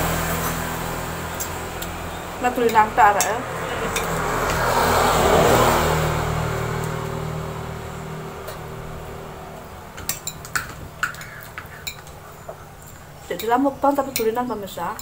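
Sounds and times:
metal spoon clinking on glass bowl: 10.0s - 12.2s, 12.8s - 15.0s.

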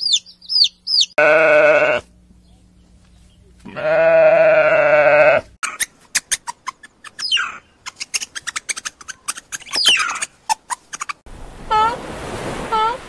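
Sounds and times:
meerkats chirping: 0.0s - 1.2s, 5.6s - 11.2s
sheep bleating: 1.2s - 2.1s, 3.6s - 5.5s.

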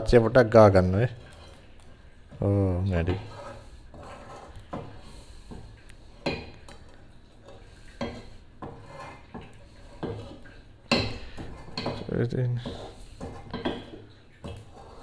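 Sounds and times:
frying pan scraping on grate: 3.0s - 15.0s.

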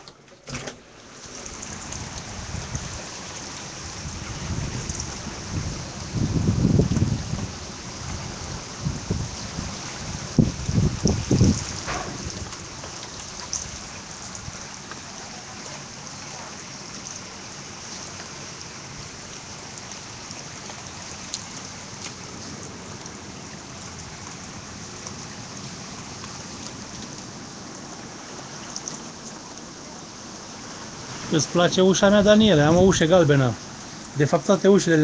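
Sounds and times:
steady rain falling: 0.0s - 35.0s.

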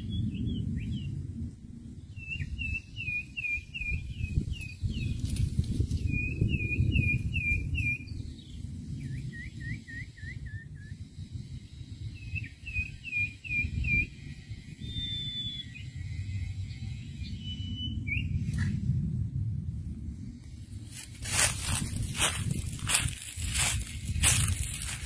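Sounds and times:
bird whistling song: 0.0s - 1.2s, 2.1s - 18.6s
steady low rumble: 0.0s - 25.0s.

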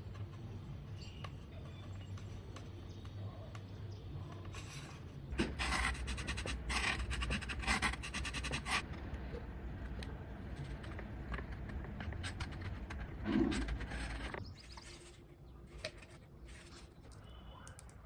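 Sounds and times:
wood scratching foam: 4.5s - 8.8s, 10.4s - 17.0s.

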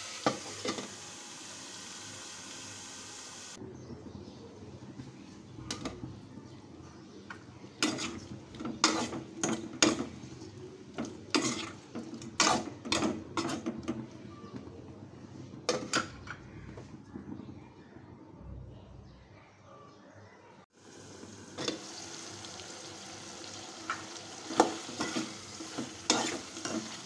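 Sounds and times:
spoon scraping metal pot: 7.8s - 14.0s, 24.5s - 27.0s.

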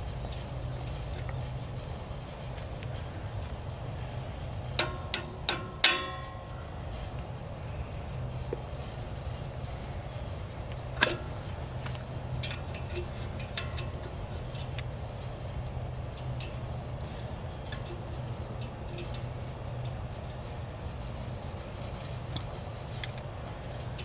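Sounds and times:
steady low hum: 0.0s - 24.0s
metal clicks of wrench on bolts: 4.8s - 6.4s, 10.7s - 14.9s, 16.1s - 20.6s.

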